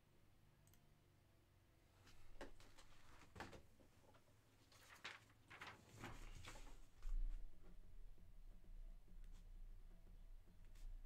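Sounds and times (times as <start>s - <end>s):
faint knocks and rustles: 2.0s - 7.8s.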